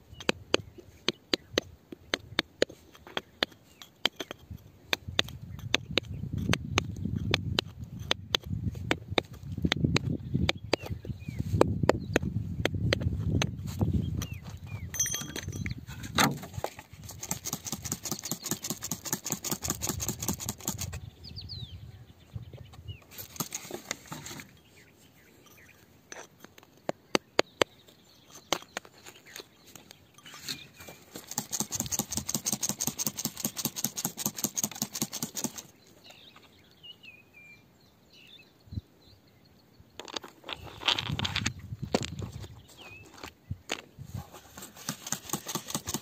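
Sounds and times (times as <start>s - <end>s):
pick scraping through dry soil: 15.7s - 21.0s, 22.9s - 26.9s, 27.9s - 36.4s, 40.0s - 46.0s.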